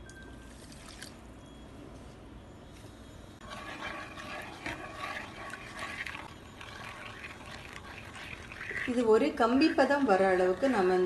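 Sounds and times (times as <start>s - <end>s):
spatula scraping sugar in pan: 3.4s - 11.0s.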